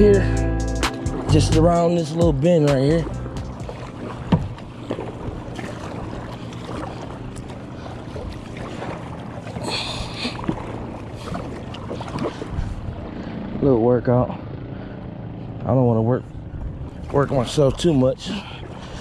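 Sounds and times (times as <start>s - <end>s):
water sloshing: 0.9s - 13.6s, 16.4s - 19.0s
paddle knocking on hull: 2.3s - 7.1s
wind on microphone: 12.0s - 13.3s.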